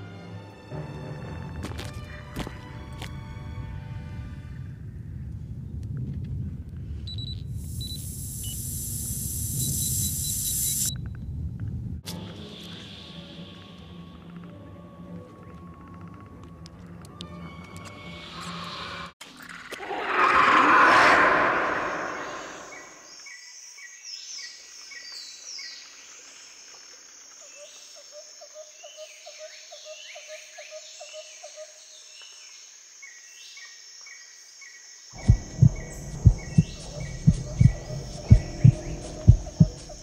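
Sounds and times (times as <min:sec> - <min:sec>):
loud harsh roar: 0:19.8 - 0:23.0
birds and insects chirping: 0:19.8 - 0:40.0
deep irregular thumps: 0:35.2 - 0:40.0.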